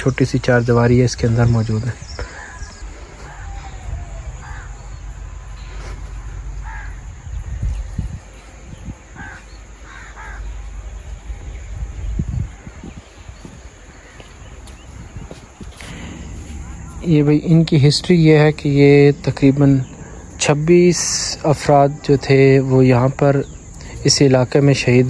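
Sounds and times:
steady low rumble: 0.0s - 25.0s
crow cawing: 2.2s - 7.7s, 9.1s - 11.0s, 13.9s - 14.5s.

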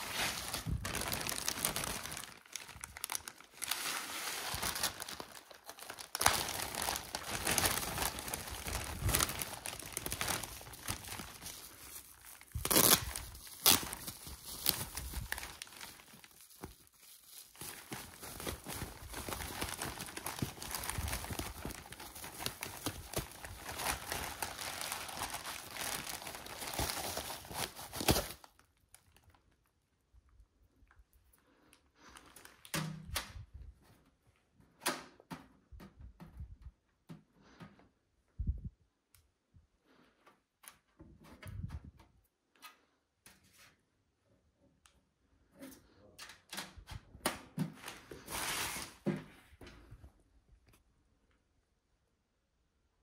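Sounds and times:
packaging crinkling and tearing: 0.0s - 29.7s.

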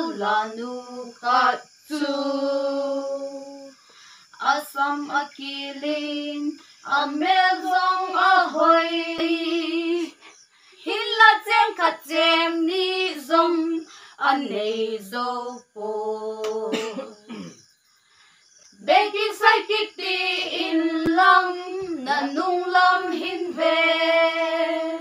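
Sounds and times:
women singing unaccompanied: 0.0s - 17.5s, 18.8s - 25.0s.

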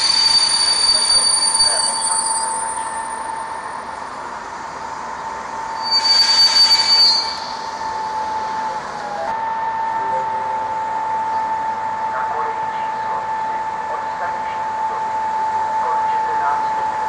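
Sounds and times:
hiss with high squeal: 0.0s - 9.3s
train electrical whine: 0.0s - 17.0s.

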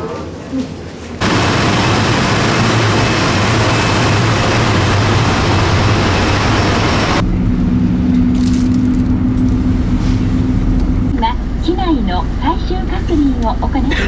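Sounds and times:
jet airliner noise: 1.2s - 8.3s
aircraft cabin hum: 1.2s - 13.6s.

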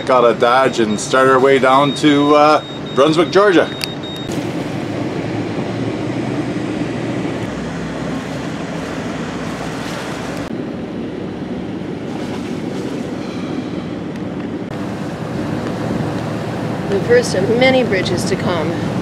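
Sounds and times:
low engine drone: 0.0s - 19.0s
water rushing: 6.9s - 19.0s.

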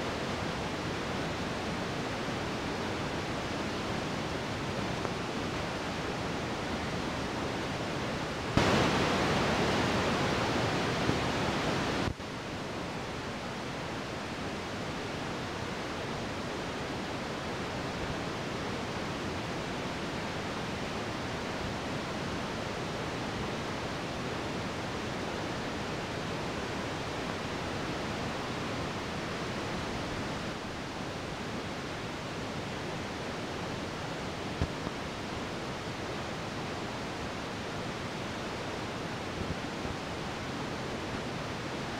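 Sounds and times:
loud rush of air: 8.5s - 12.1s.

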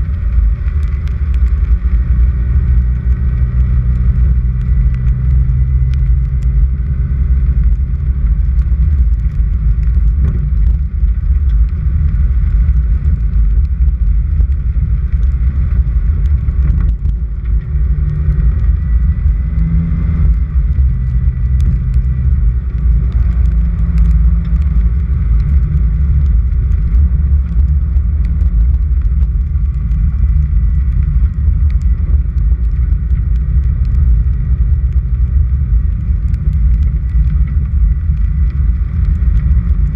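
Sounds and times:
faint ticks: 0.0s - 39.9s
vehicle driving on dirt road: 0.0s - 39.9s.

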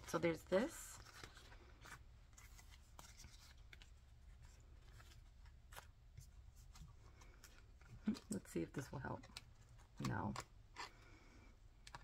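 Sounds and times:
paper sticker sheets rustling: 0.1s - 11.0s.

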